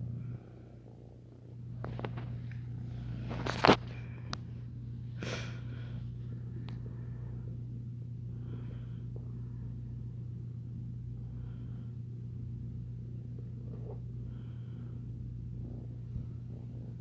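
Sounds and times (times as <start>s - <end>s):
kitten purring: 12.6s - 17.0s.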